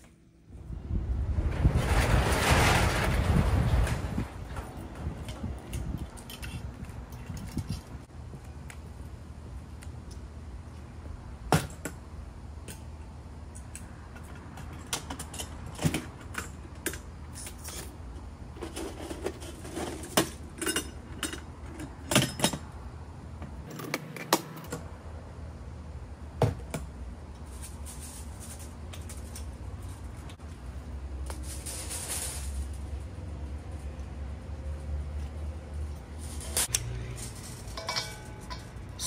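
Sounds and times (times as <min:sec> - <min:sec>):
hose fittings jangling: 0:36.4 - 0:39.0.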